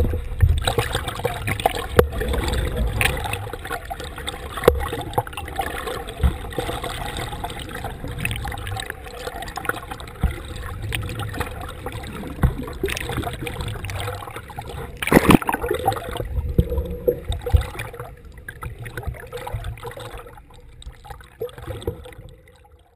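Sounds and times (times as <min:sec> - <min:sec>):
rush of water: 0:00.0 - 0:22.8
water sloshing and gurgling: 0:00.0 - 0:22.9.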